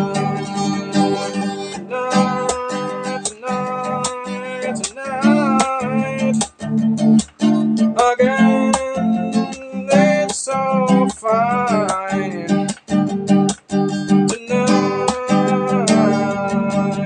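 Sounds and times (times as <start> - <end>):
person singing: 0.0 - 6.7, 7.5 - 12.9, 14.0 - 17.0
acoustic guitar strummed: 0.0 - 17.0.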